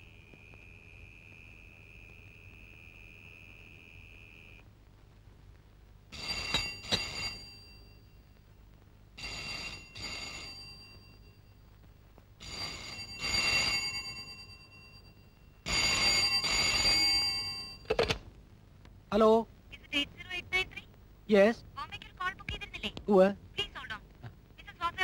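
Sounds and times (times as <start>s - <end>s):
telephone ringing: 6.1s - 8.3s, 9.2s - 11.6s, 12.4s - 18.2s.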